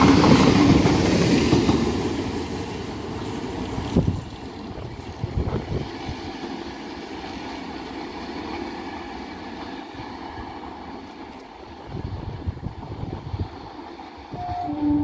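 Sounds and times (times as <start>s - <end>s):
train wheels rumbling on rails: 0.0s - 15.0s.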